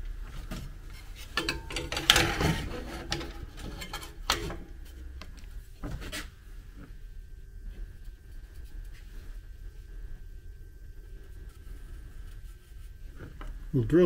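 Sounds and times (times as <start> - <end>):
metal knocks and scraping rubs: 0.3 - 5.1
metal clatter: 0.5 - 4.8.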